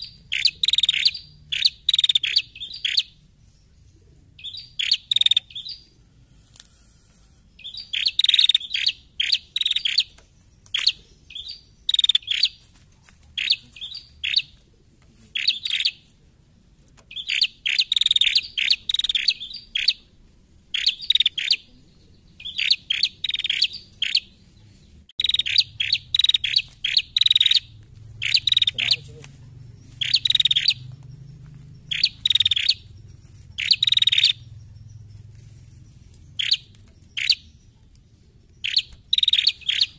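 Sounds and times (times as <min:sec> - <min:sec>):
bird chirping sharply: 0:00.0 - 0:03.2, 0:04.4 - 0:06.0, 0:07.4 - 0:12.6, 0:17.1 - 0:20.0, 0:20.7 - 0:21.7, 0:22.3 - 0:24.4, 0:25.2 - 0:29.2, 0:29.8 - 0:35.1, 0:36.3 - 0:37.7, 0:38.6 - 0:39.9.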